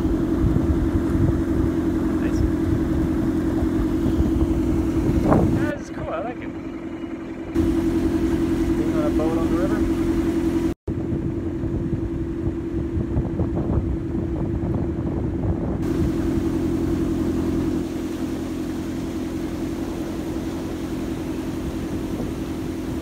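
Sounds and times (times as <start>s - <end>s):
boat engine humming: 0.0s - 23.0s
wind and water noise: 0.0s - 23.0s.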